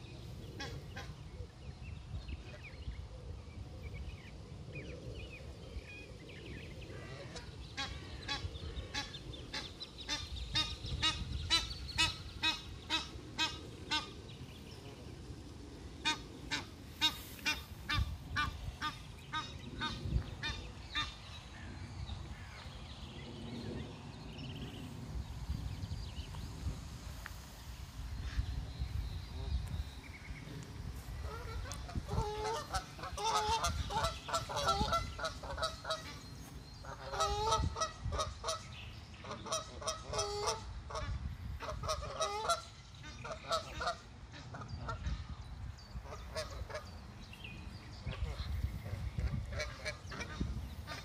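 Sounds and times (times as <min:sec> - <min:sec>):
geese honking: 0:31.2 - 0:36.2, 0:36.8 - 0:38.6, 0:39.2 - 0:45.2.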